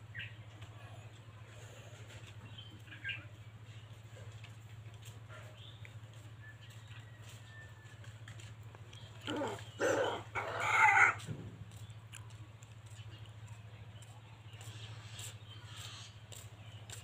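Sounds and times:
rooster crowing: 9.4s - 11.2s.

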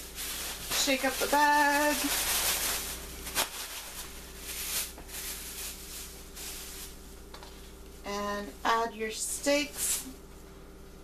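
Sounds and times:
plastic bag shaking and rustling: 0.0s - 7.1s.

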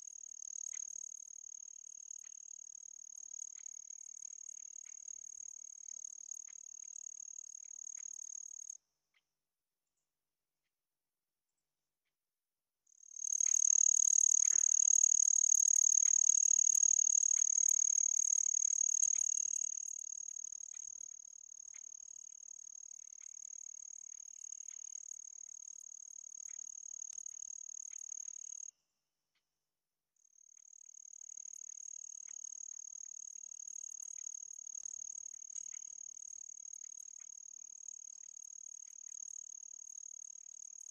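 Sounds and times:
faint clicks: 2.2s - 2.4s, 5.9s - 7.0s, 7.6s - 9.3s, 13.3s - 22.2s
crickets trilling: 13.1s - 21.0s.

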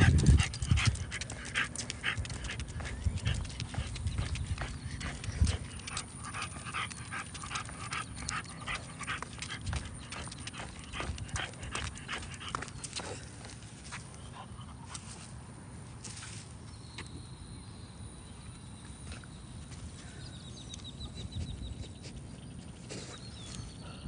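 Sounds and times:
dog panting: 0.0s - 13.5s
footsteps on concrete: 0.0s - 14.2s.

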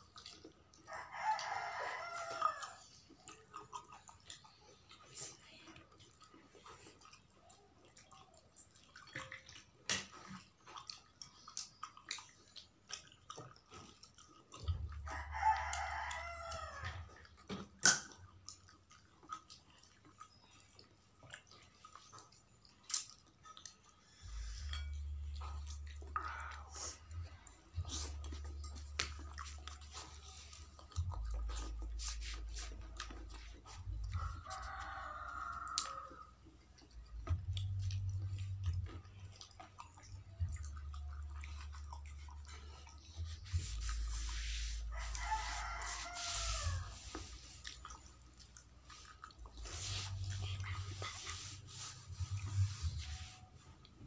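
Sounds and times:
wet chewing: 0.0s - 54.0s
rooster crowing: 0.9s - 2.8s, 15.0s - 17.0s, 34.2s - 36.3s, 44.9s - 47.1s
lip smacks: 2.4s - 24.5s, 25.4s - 54.0s.

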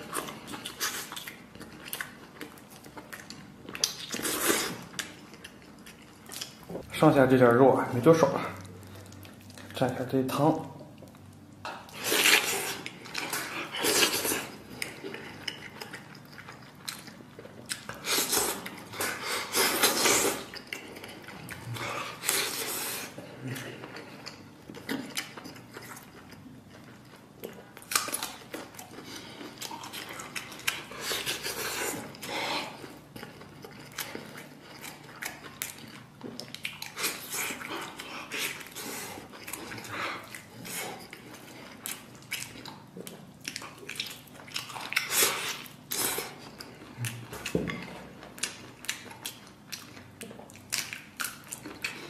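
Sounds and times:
person chewing and biting: 0.0s - 6.8s, 10.9s - 52.0s.

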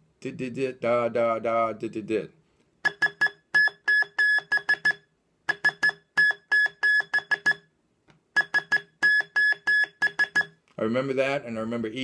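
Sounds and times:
morse code beeps: 2.8s - 7.7s, 8.4s - 10.6s.

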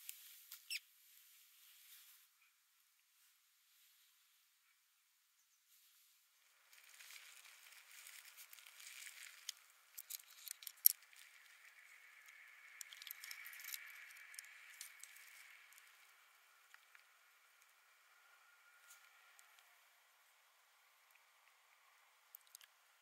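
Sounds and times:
faint steady hiss: 0.0s - 23.0s
teeth and bones clicking among pebbles: 6.7s - 16.0s, 22.3s - 22.7s.

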